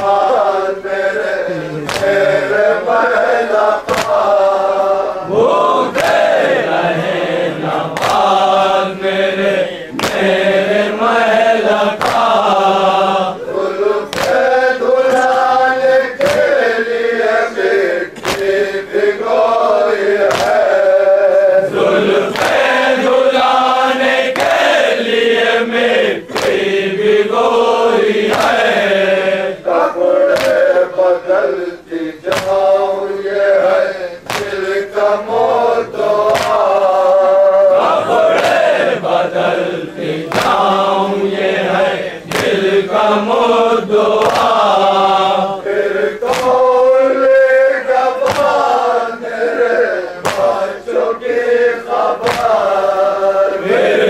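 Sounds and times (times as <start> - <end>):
men chanting in unison: 0.0 - 54.0
hands striking chests: 1.8 - 2.3, 3.9 - 4.2, 12.0 - 12.3, 20.2 - 20.6, 26.3 - 26.6, 32.3 - 32.7, 34.2 - 34.6, 36.2 - 36.7, 40.3 - 40.7, 46.2 - 46.6, 48.2 - 48.6, 50.2 - 50.6, 52.2 - 52.6.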